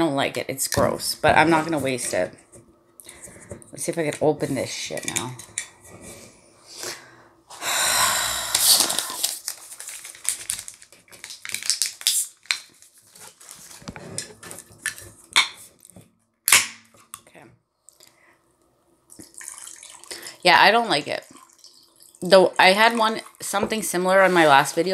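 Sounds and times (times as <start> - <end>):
can venting hissing fizz: 8.0 - 9.5.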